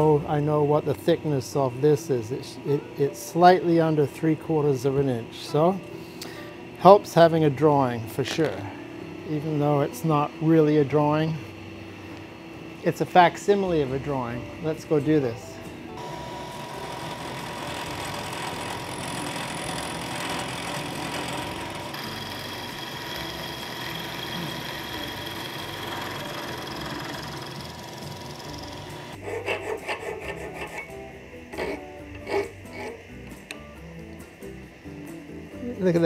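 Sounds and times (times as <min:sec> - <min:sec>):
milling machine whirring: 0:13.5 - 0:29.2
hand file rasping on metal: 0:28.4 - 0:33.1.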